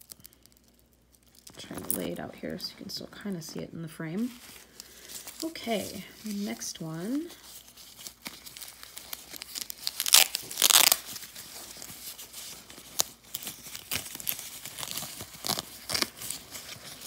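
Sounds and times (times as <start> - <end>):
tissue paper crinkling and tearing: 4.1 - 17.0.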